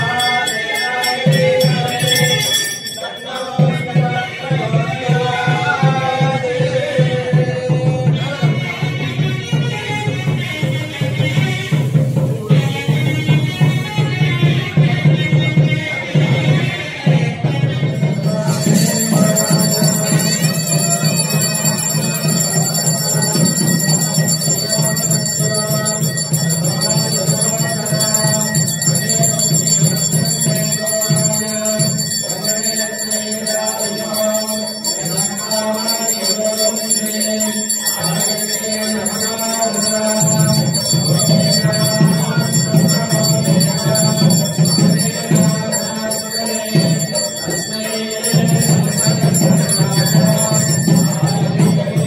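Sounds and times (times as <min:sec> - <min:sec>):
temple bells ringing: 0:00.0 - 0:04.1, 0:17.8 - 0:52.0.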